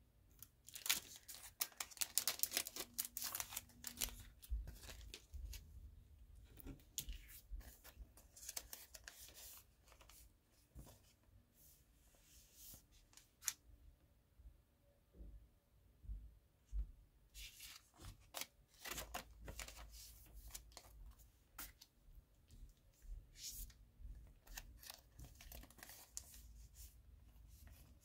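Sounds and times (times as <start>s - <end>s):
plastic wrapper crinkling: 0.6s - 5.3s.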